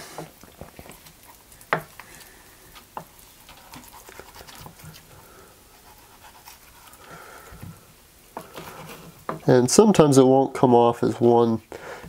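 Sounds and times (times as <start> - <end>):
knife scraping along bones: 0.2 - 7.2, 8.4 - 9.5.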